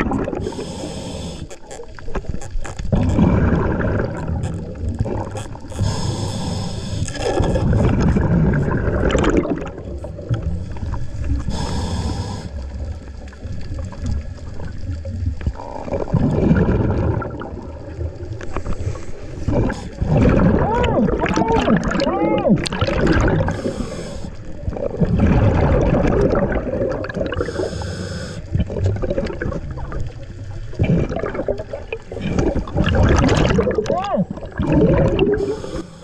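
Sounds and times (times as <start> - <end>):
bubbles gurgling: 0.0 - 0.7, 1.8 - 6.1, 7.1 - 11.9, 12.6 - 27.8, 28.5 - 35.8
regulator hissing inhales: 0.4 - 1.7, 5.8 - 7.2, 10.7 - 12.6, 23.5 - 24.5, 27.4 - 28.5, 35.4 - 36.0.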